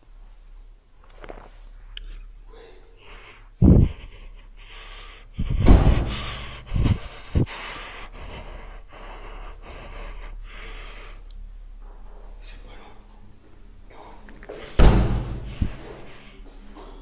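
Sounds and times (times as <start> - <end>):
person breathing fast and hard: 2.5 - 11.4, 14.0 - 16.6.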